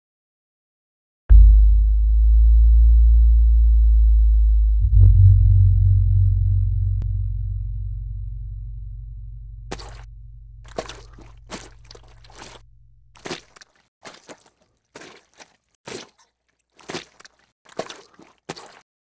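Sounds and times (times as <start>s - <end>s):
low hum: 1.3s - 13.2s
footsteps walking: 9.7s - 12.6s, 13.2s - 18.8s.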